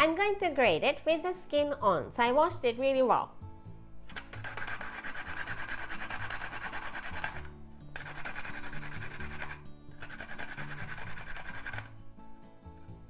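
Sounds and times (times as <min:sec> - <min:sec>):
background music with low notes: 0:00.0 - 0:13.0
ginger rasping on a plastic grater: 0:04.2 - 0:11.9.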